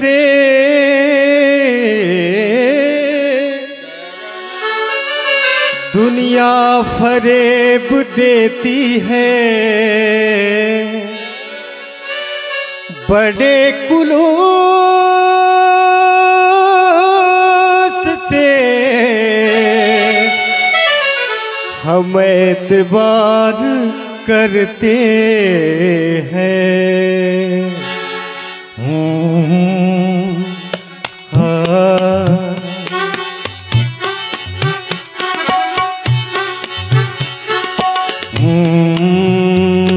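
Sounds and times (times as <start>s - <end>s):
man singing: 0.0s - 11.8s, 12.7s - 35.6s, 36.3s - 39.9s
harmonium: 0.0s - 39.9s.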